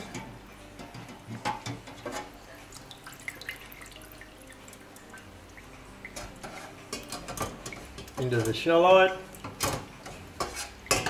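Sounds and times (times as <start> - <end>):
water drips into bowl: 2.8 - 6.2.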